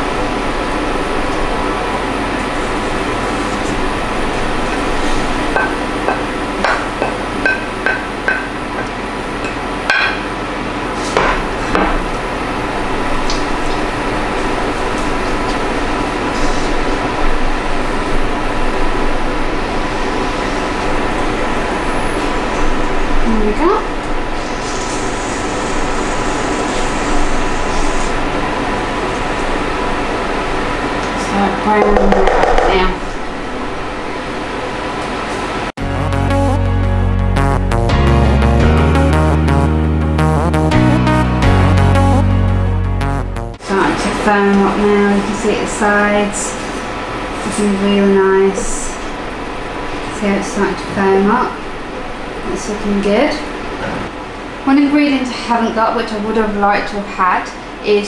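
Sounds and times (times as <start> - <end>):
metal utensil knocking on pan: 5.6 - 8.9, 31.8 - 32.9.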